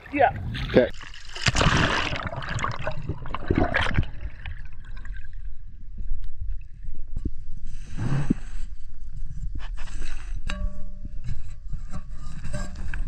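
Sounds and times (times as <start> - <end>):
water splashing and rushing: 0.0 - 5.6
faint clicks and bubbling: 0.0 - 13.0
muffled underwater rumble: 2.2 - 13.0.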